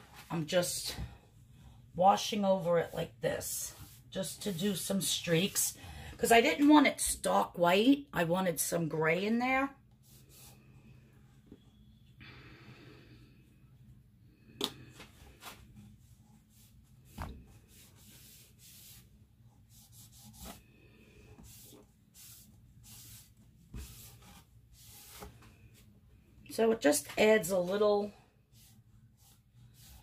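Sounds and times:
cloth rubbing on wooden board: 16.4s - 20.6s, 21.4s - 25.3s.

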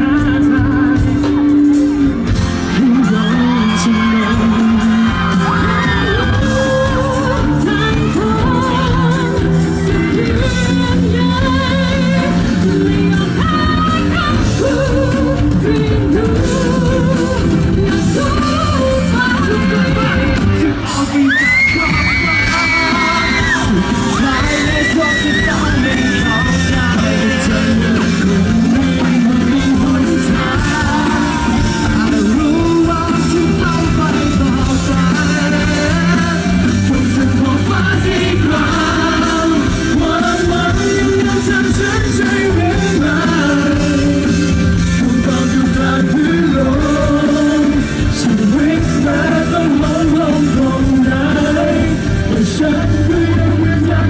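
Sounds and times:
live pop-rock band: 0.0s - 54.0s
male and female singers: 0.0s - 54.0s.

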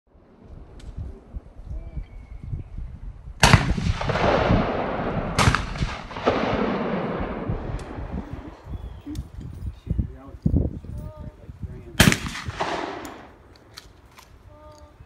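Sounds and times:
shotgun shots with echo: 3.4s - 8.0s, 12.0s - 13.3s.

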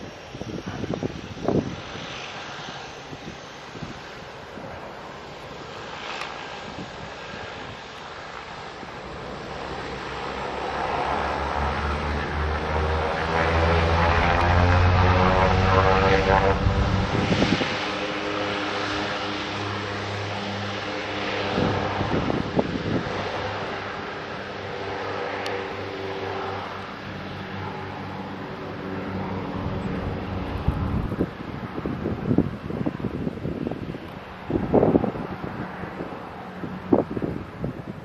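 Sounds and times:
turboprop aircraft propeller buzz: 0.0s - 38.0s.

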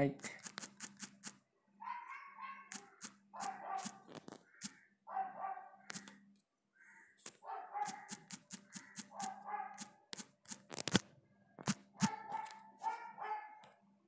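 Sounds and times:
dog barking: 1.8s - 4.0s, 5.1s - 5.9s, 7.4s - 8.3s, 9.1s - 10.0s, 12.0s - 13.7s.

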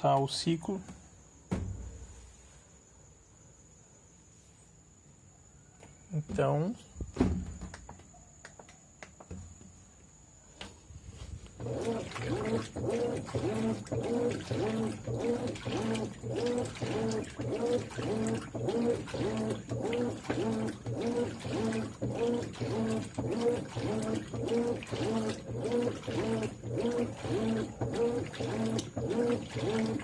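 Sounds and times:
water and clothes sloshing: 11.1s - 30.0s
washing machine motor whining: 11.3s - 30.0s.

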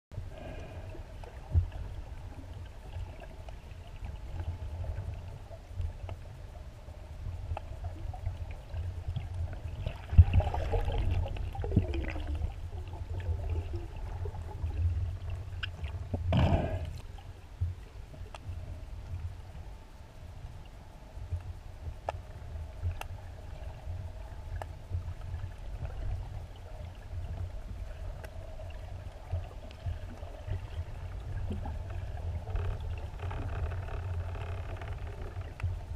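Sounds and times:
underwater rumble of moving water: 0.1s - 35.9s.

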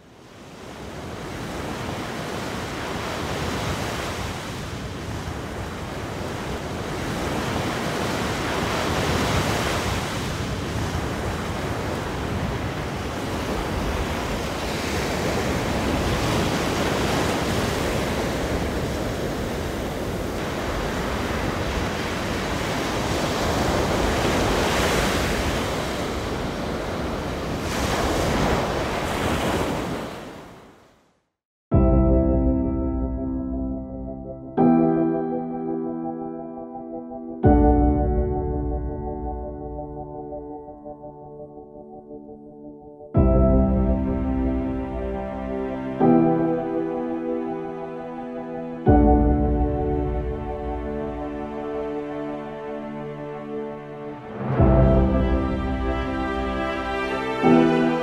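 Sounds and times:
ocean waves breaking: 0.0s - 30.8s, 43.6s - 58.0s.

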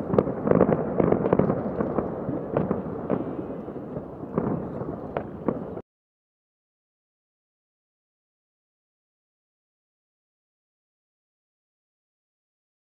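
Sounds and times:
fireworks bangs and crackling: 0.0s - 5.8s.

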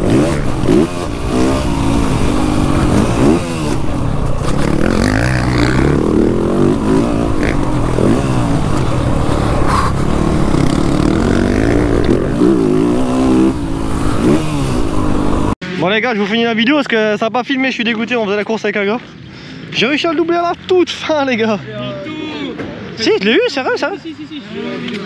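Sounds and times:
motocross bike engine revving: 0.0s - 15.6s.

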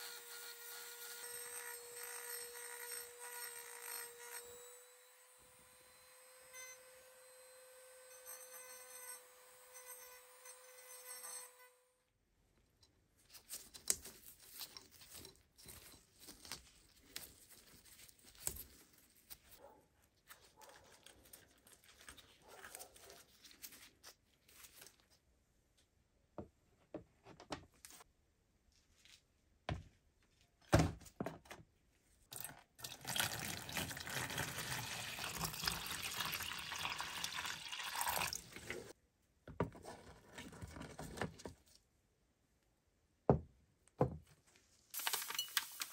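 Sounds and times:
wire twisting clicks and scrapes: 12.8s - 25.2s
liquid pouring into plastic tub: 32.3s - 38.9s.

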